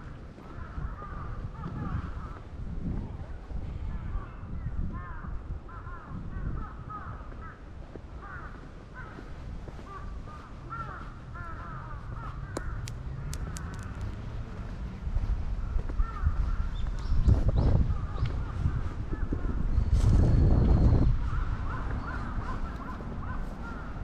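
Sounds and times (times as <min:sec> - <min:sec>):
birds calling: 0:04.0 - 0:15.0, 0:15.6 - 0:24.0
sharp clicks: 0:12.5 - 0:14.2.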